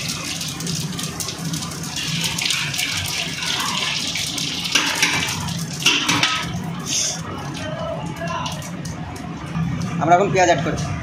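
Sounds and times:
spices sizzling in hot oil: 0.0 - 7.2.

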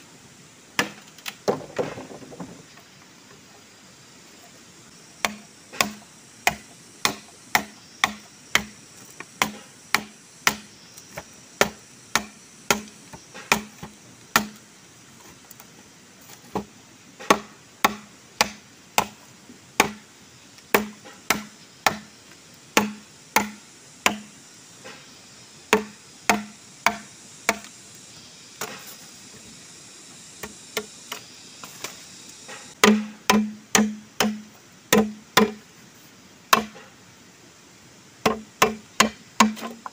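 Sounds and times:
machete chopping bamboo: 0.8 - 1.6, 5.2 - 8.8, 9.4 - 14.6, 16.5 - 19.2, 19.8 - 20.0, 20.7 - 22.1, 22.8 - 24.3, 25.7 - 27.7, 32.7 - 35.6, 36.5 - 36.8, 38.2 - 39.9.

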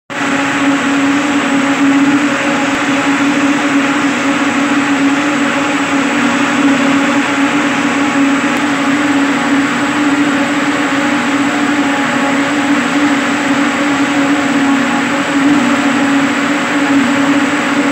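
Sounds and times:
constant machine hum: 0.1 - 17.9.

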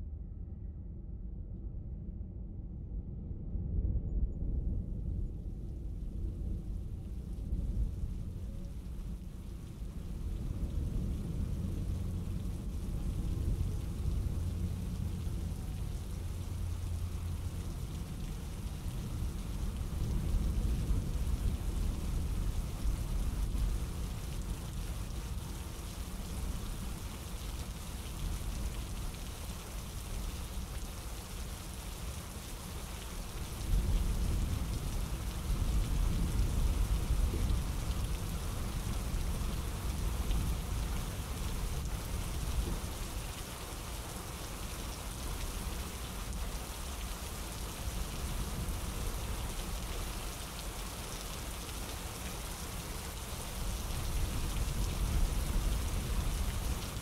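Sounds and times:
low rumble: 0.0 - 25.2
steady rain falling: 5.4 - 57.0.

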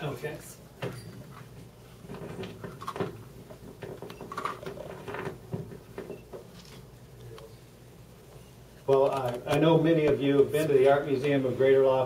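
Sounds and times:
clip-on microphone handling noise: 8.8 - 11.0.

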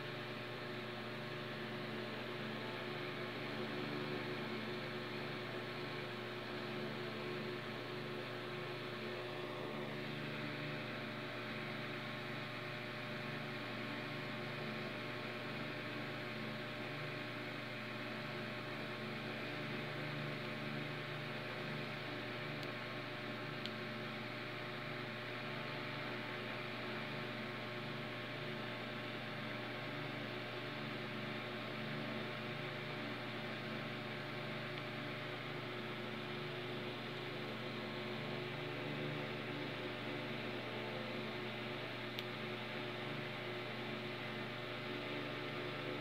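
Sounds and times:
electrical hum with hiss: 0.0 - 46.0
faint click: 42.1 - 42.4.

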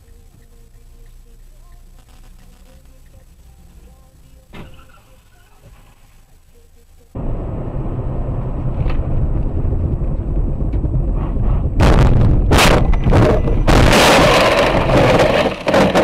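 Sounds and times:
road and engine noise inside car: 0.0 - 11.9
car collision crash: 11.2 - 16.0.

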